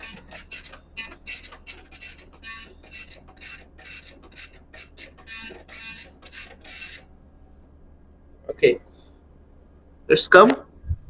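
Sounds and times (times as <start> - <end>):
dot-matrix printer printing: 0.0 - 7.1.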